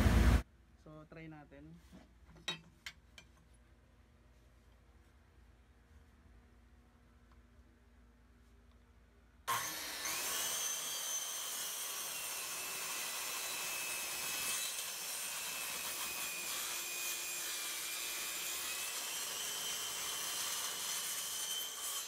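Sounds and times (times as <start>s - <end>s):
circular saw cutting wood: 9.5s - 22.0s.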